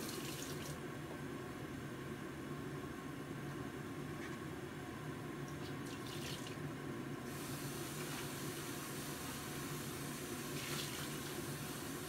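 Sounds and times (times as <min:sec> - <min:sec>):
gas burner hiss: 0:07.3 - 0:12.0
water heating in pot: 0:07.3 - 0:12.0.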